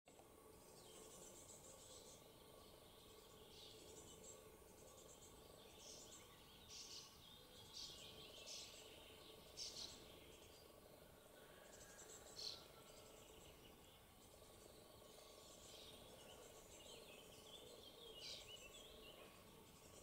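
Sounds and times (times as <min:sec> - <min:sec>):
faint steady hum: 0:00.1 - 0:20.0.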